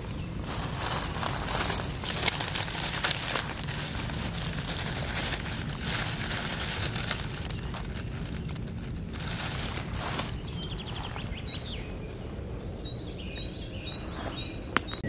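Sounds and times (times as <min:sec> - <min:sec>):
dry leaves crackling: 0:00.0 - 0:12.0.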